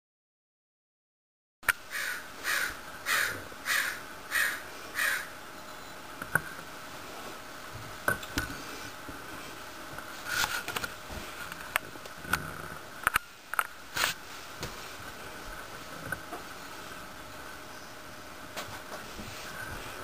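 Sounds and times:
crow cawing: 0:01.9 - 0:05.3.

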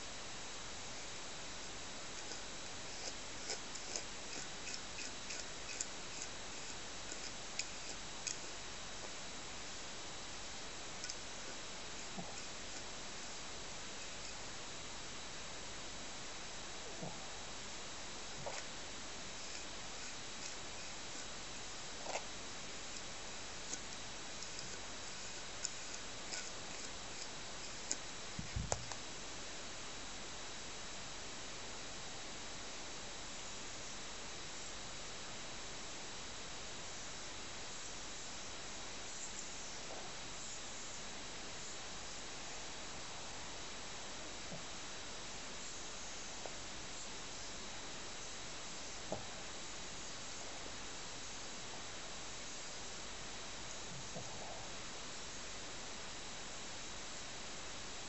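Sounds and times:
steady hiss: 0:00.0 - 0:58.0
grooming brush clicks: 0:02.2 - 0:08.5, 0:11.0 - 0:12.9, 0:19.4 - 0:21.3, 0:22.9 - 0:29.0.

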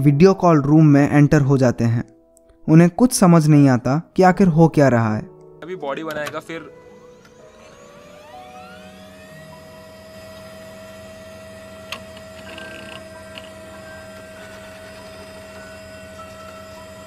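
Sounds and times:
computer whine and hum: 0:06.3 - 0:17.0.

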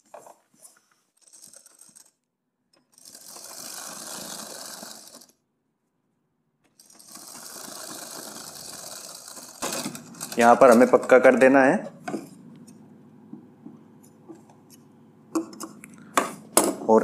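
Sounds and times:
sewing machine stitching: 0:01.2 - 0:02.2, 0:02.8 - 0:05.4, 0:06.7 - 0:12.4.

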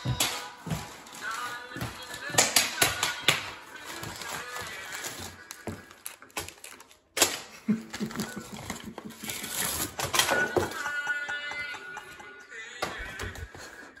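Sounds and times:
plastic bag crinkling: 0:00.0 - 0:07.2, 0:07.9 - 0:10.8.

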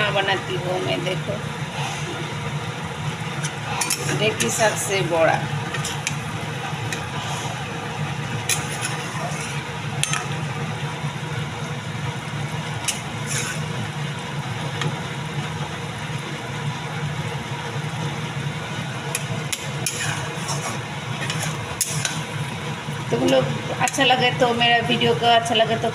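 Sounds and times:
low hum: 0:00.0 - 0:25.9
curry simmering hiss: 0:17.5 - 0:24.5.

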